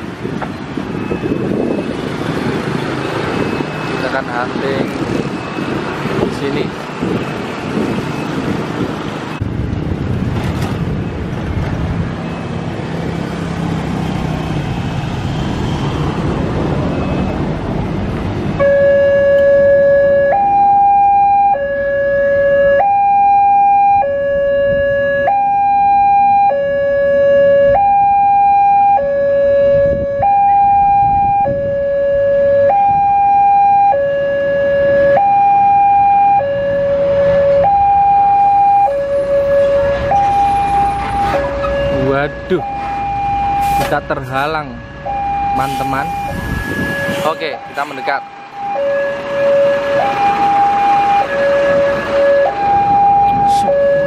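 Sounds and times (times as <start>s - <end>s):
road traffic passing: 0.0s - 54.0s
two-tone electronic crossing alarm: 0.8s - 5.9s, 16.8s - 17.5s, 18.6s - 54.0s.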